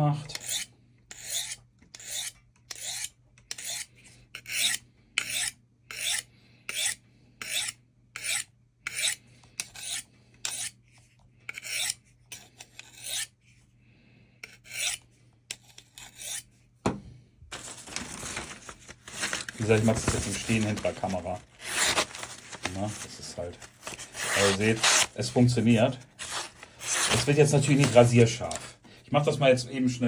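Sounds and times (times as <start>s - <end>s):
knife scraping on sharpening rod: 0.3s - 10.8s, 11.5s - 13.4s, 14.4s - 16.5s.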